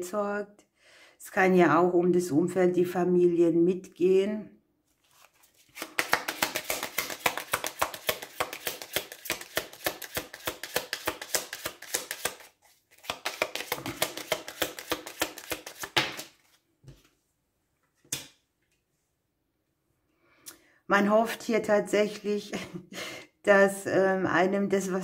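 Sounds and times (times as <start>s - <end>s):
cards being shuffled: 4.9s - 17.1s.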